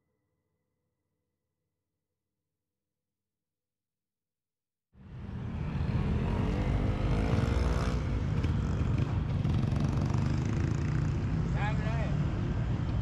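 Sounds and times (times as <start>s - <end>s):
traffic engines rumbling: 5.0s - 13.0s
motorcycle accelerating: 5.1s - 13.0s.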